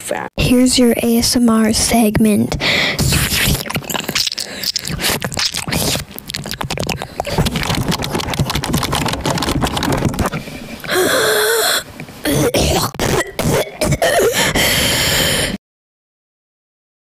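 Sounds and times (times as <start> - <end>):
raspy throat-like bursts: 2.6 - 15.6
scratching and tapping: 3.0 - 10.4.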